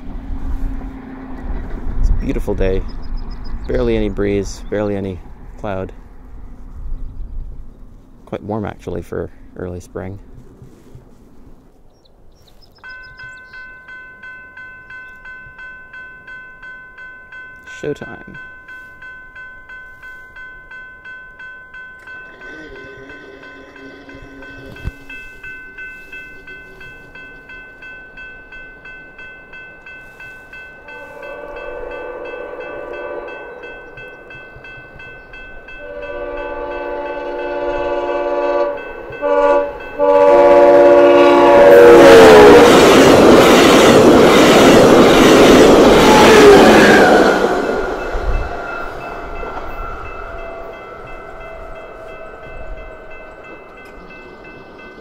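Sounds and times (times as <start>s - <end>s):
train rushing past: 0.0s - 11.1s, 21.4s - 55.0s
crossing bell ringing: 12.8s - 55.0s
train horn blasts: 22.1s - 25.3s, 30.8s - 34.0s, 35.7s - 43.0s, 45.9s - 54.0s.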